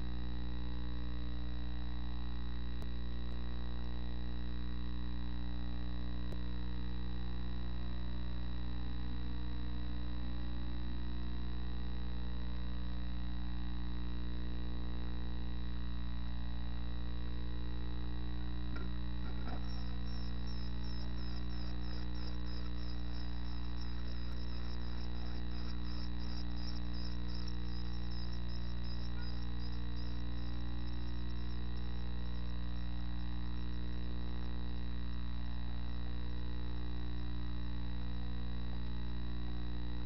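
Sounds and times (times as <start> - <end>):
steady low hum: 0.0 - 40.0
nestlings chirping: 18.7 - 32.6.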